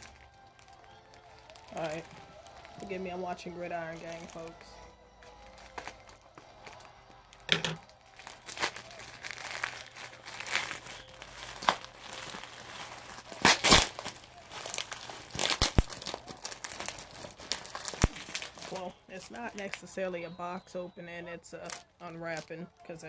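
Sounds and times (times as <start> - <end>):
packaging wrap crinkling and tearing: 0.0 - 19.9, 21.6 - 22.8.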